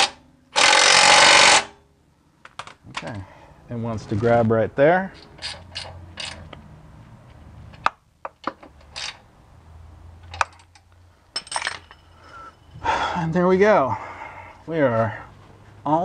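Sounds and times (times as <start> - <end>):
ratchet clicking metal on metal: 5.2 - 6.4, 8.8 - 9.2.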